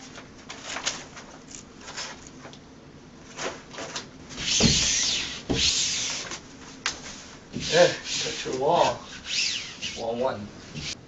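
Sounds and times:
hands rubbing vinyl on wall: 4.3 - 11.0.

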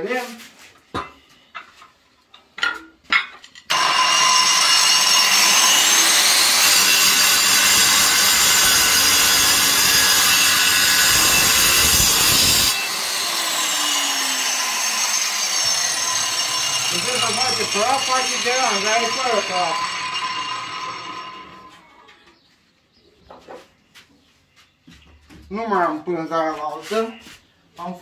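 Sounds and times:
angle grinder whine: 3.7 - 22.1.

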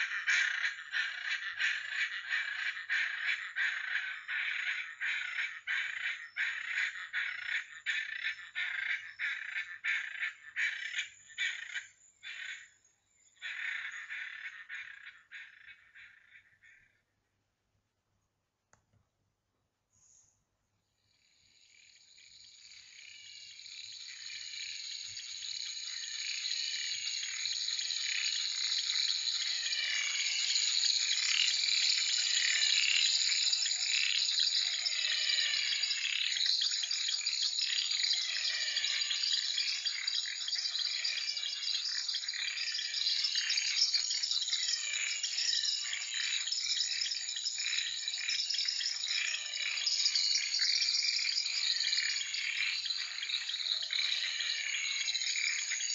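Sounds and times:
animals calling: 0.0 - 17.1, 21.6 - 55.9
high insect drone: 21.2 - 55.9.

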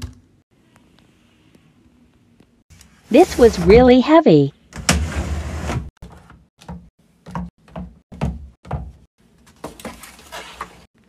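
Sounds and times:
bottle scraping on shelf: 3.2 - 3.8.

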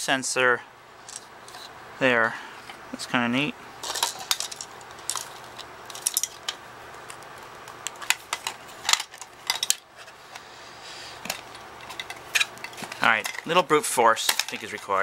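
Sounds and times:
plastic parts clicking and knocking: 3.8 - 10.4, 11.2 - 13.6, 14.2 - 15.0.

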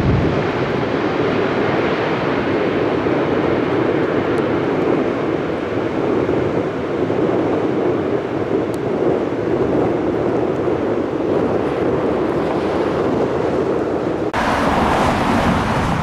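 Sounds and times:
jet engines roaring: 0.0 - 16.0.

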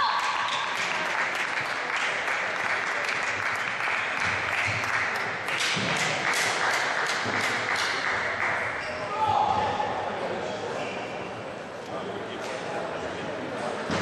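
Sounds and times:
spectators applauding: 0.0 - 8.8.

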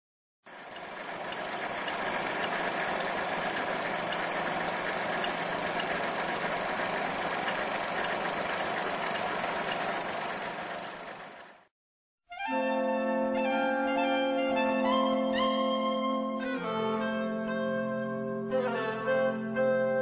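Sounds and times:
film projector whirring: 0.5 - 11.7.

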